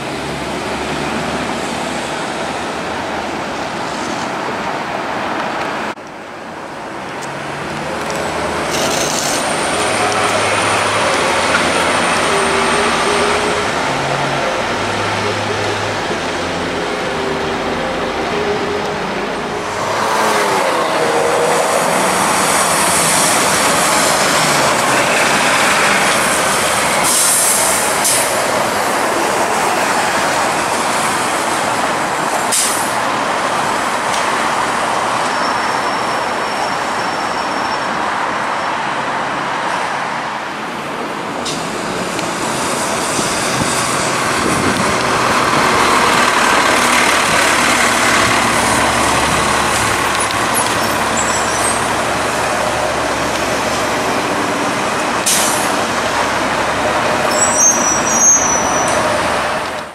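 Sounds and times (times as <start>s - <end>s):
diesel bus running: 0.0s - 59.9s
street traffic noise: 0.0s - 59.9s.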